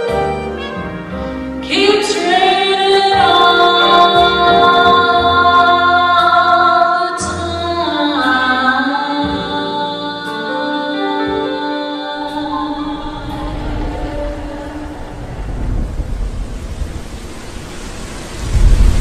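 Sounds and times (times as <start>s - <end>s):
woman singing long notes: 1.7s - 15.5s
thunder rumble: 12.2s - 19.0s
rain: 12.3s - 19.0s.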